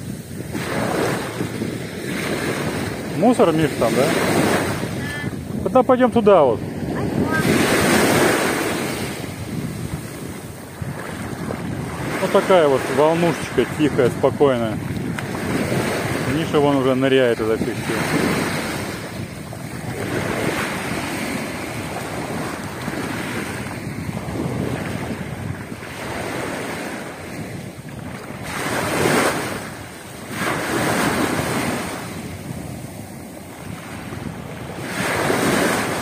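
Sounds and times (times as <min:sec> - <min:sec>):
wind buffeting microphone: 0:00.0 - 0:36.0.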